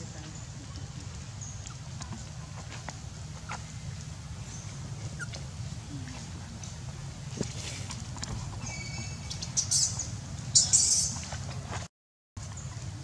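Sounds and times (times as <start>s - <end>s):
steady low rumble: 0.0s - 13.0s
baby monkey whimpering squeaks: 5.1s - 5.4s.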